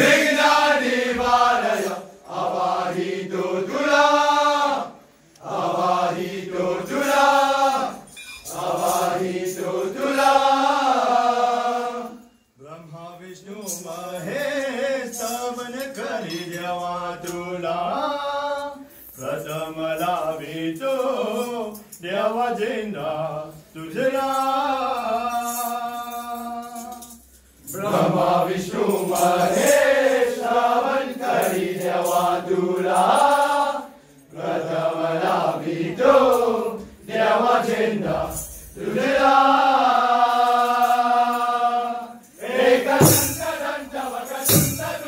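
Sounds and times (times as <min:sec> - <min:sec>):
men chanting and singing: 0:00.0 - 0:45.0.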